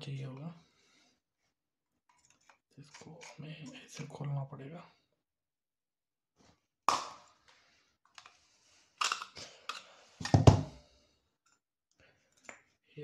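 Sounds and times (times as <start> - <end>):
plastic housing cracking and clicking: 9.0 - 10.4.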